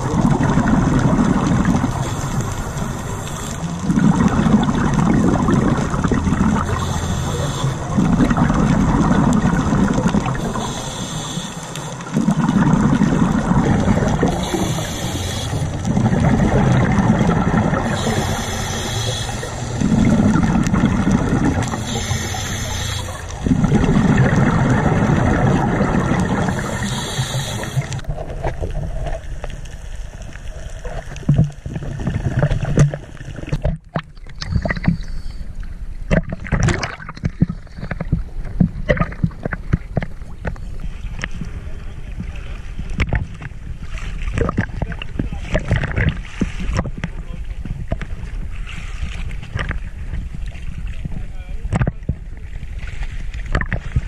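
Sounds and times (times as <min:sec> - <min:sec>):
exhaled bubbles rumbling: 0:00.0 - 0:54.0
regulator inhale hiss: 0:01.9 - 0:03.8, 0:06.6 - 0:08.0, 0:10.3 - 0:12.2, 0:14.2 - 0:15.9, 0:17.8 - 0:19.9, 0:21.6 - 0:23.4, 0:26.2 - 0:28.0.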